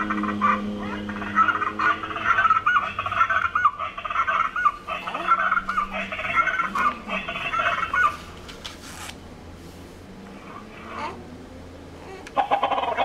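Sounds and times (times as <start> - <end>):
recorded bird calls from speaker: 0.0 - 8.2.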